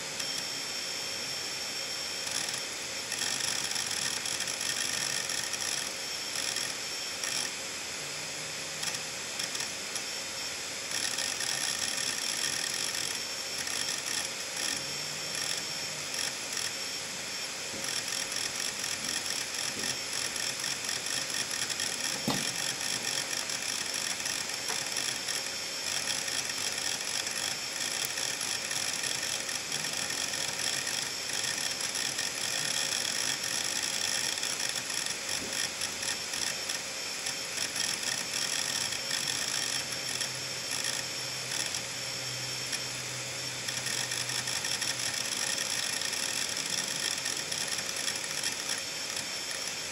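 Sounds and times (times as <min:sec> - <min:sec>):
hard drive platter whine: 0:00.0 - 0:49.9
hard drive head clicking: 0:17.7 - 0:41.9, 0:43.7 - 0:49.9.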